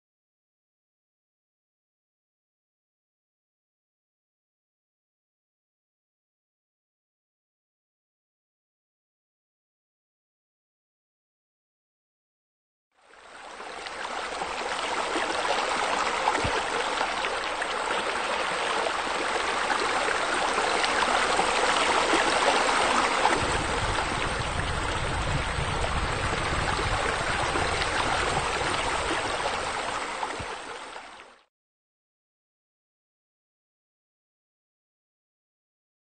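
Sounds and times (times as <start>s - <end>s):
running splashing water: 13.5s - 31.2s.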